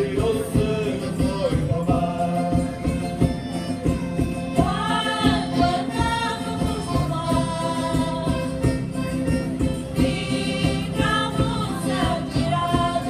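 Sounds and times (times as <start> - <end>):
group singing in unison: 0.0 - 2.7, 4.6 - 8.6, 9.8 - 13.0
jingling percussion beat: 0.0 - 13.0
strummed string instruments: 0.0 - 13.0.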